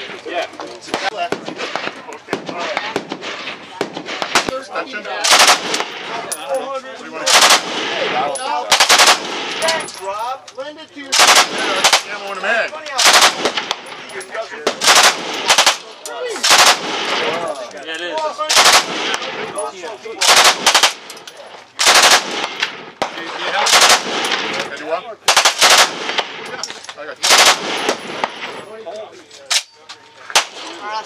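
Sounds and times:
pistol gunshots with echo: 0:05.2 - 0:06.2, 0:07.2 - 0:09.8, 0:11.1 - 0:12.2, 0:13.0 - 0:14.0, 0:14.6 - 0:17.5, 0:18.5 - 0:19.5, 0:20.2 - 0:21.1, 0:21.8 - 0:24.6, 0:25.3 - 0:26.4, 0:27.2 - 0:28.6.

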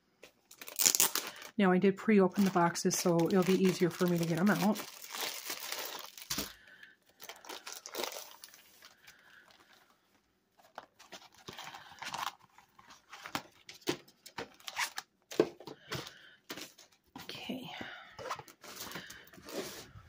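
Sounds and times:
plastic sleeve rustling: 0:00.2 - 0:01.6, 0:02.3 - 0:09.9.

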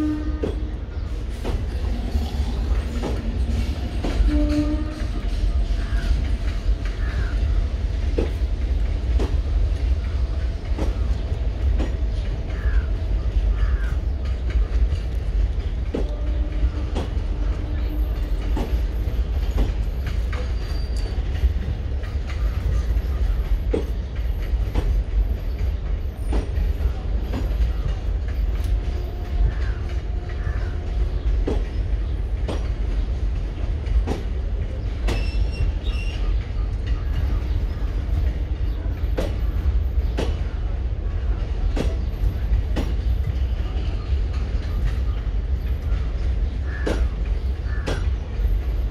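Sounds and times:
train rumble: 0:00.0 - 0:48.9
train wheels clicking over rail joints: 0:00.0 - 0:48.9
faint wheel squeal: 0:17.8 - 0:21.4.

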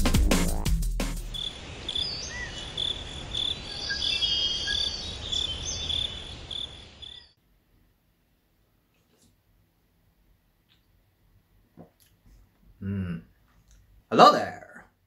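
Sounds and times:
drum and bass music: 0:00.0 - 0:01.4
crickets chirping: 0:01.3 - 0:07.4.

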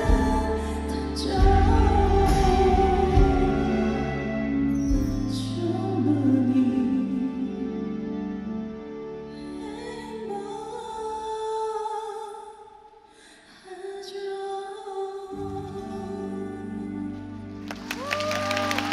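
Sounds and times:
woman singing into microphone: 0:00.0 - 0:04.6, 0:05.2 - 0:07.7, 0:09.6 - 0:12.8, 0:13.5 - 0:17.6.

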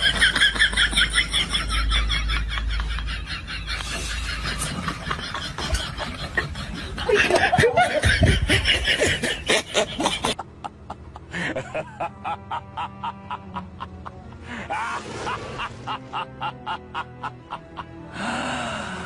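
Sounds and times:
person laughing: 0:00.1 - 0:18.0
light background music: 0:03.9 - 0:19.0.

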